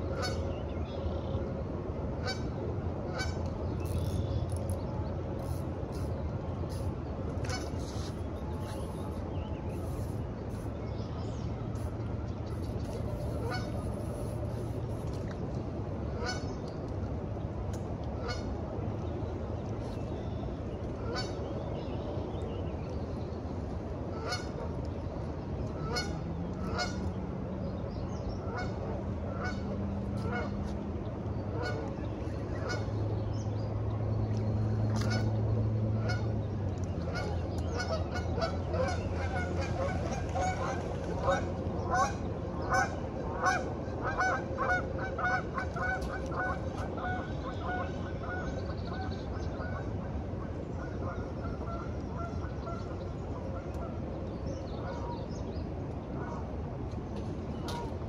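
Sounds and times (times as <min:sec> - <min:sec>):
low steady drone: 0:00.0 - 0:58.0
geese honking: 0:13.2 - 0:14.2, 0:25.8 - 0:27.0, 0:28.5 - 0:29.6, 0:37.1 - 0:48.4.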